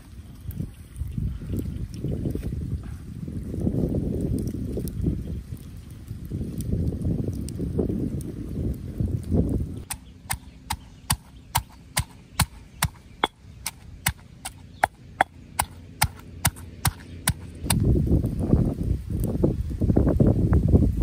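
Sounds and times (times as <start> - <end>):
blade chopping: 9.8 - 17.9.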